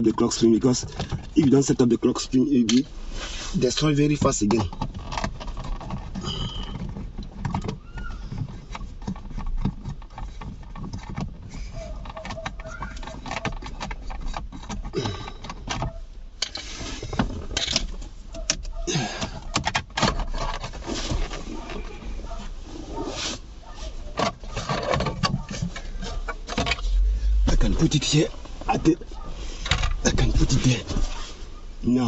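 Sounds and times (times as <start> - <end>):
clicks and knocks of hand work: 4.2 - 21.9
low steady hum: 23.8 - 32.0.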